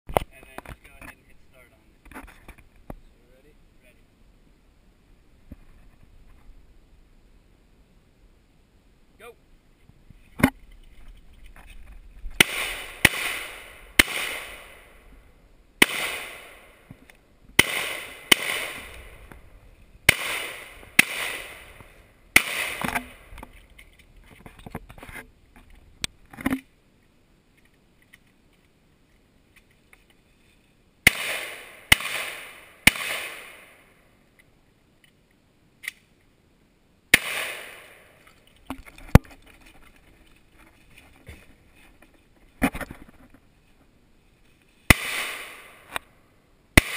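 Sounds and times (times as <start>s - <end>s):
gunshots with echo: 12.4s - 14.9s, 15.8s - 16.8s, 17.6s - 19.2s, 20.1s - 23.3s, 31.1s - 33.8s, 37.1s - 38.0s, 44.9s - 45.9s.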